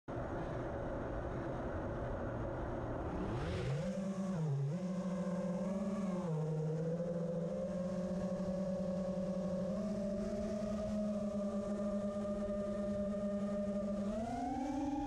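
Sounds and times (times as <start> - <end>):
drone motors and propellers: 0.1 - 15.0.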